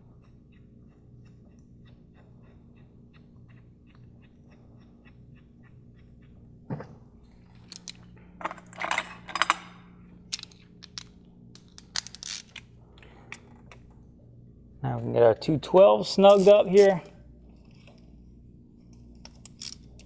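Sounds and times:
metal tools clinking: 7.7s - 9.7s.

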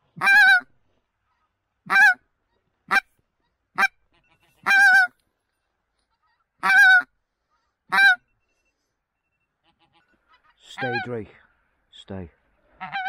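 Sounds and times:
goose call honks: 3.8s - 5.1s, 7.9s - 8.2s, 9.7s - 11.3s, 12.8s - 13.0s.

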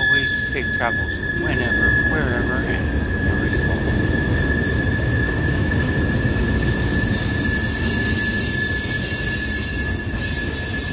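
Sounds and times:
high-pitched wheel squeal: 0.0s - 10.9s
train wheels rumbling on rail: 0.0s - 10.9s.

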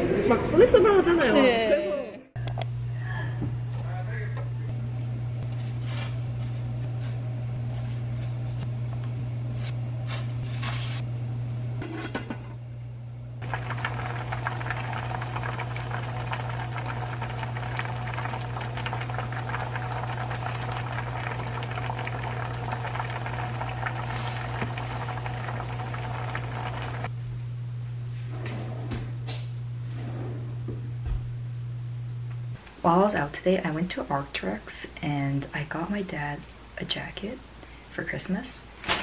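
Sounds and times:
low hum: 2.1s - 32.6s
stew boiling and bubbling: 13.3s - 27.1s.

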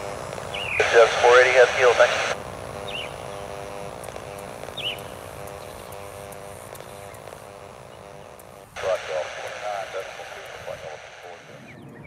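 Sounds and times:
low pulsing chirping call: 0.5s - 0.9s, 2.8s - 3.5s, 4.7s - 12.0s.

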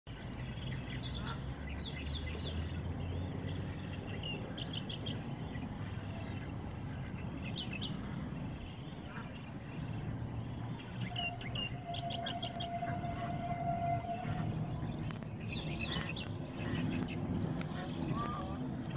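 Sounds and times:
birds chirping: 0.1s - 18.9s
wind rumbling on microphone: 0.1s - 18.9s.

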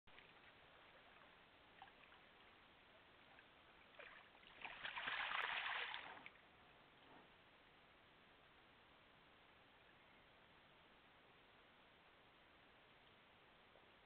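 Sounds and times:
water sloshing and splashing: 0.1s - 2.6s, 3.2s - 6.4s
faint steady hiss: 0.1s - 14.0s.

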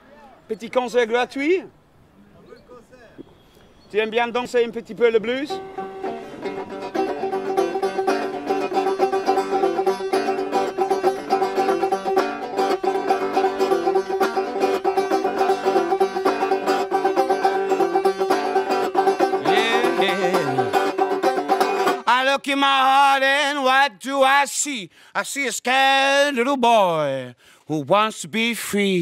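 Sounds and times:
banjo playing blues: 5.4s - 23.0s
person singing: 19.2s - 21.0s.

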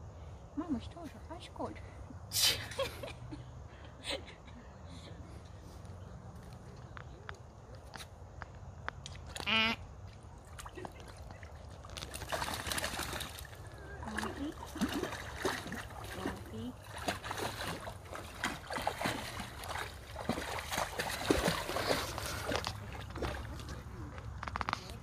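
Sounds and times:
dog splashing through water: 10.4s - 24.0s.

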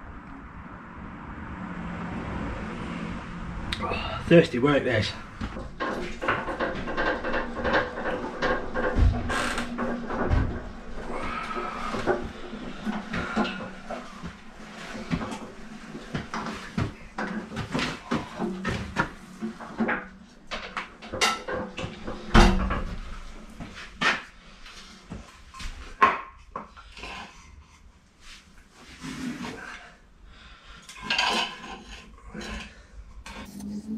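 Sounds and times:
metal clanks and scraping: 4.3s - 26.0s, 30.8s - 33.9s.

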